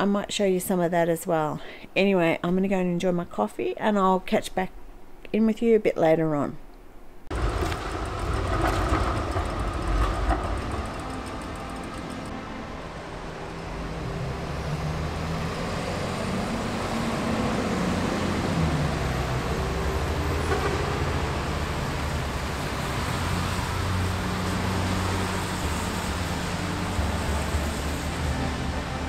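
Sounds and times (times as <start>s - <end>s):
traffic rumble on wet roads: 7.4s - 11.5s, 12.3s - 29.0s.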